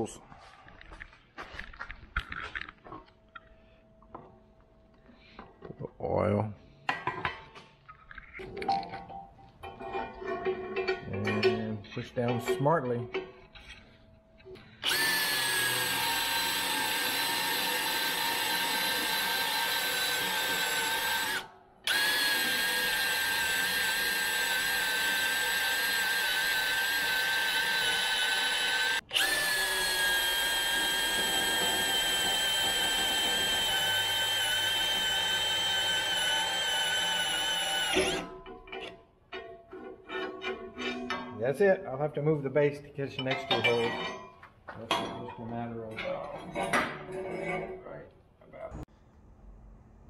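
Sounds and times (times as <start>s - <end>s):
drill boring through steel: 14.8s - 38.3s.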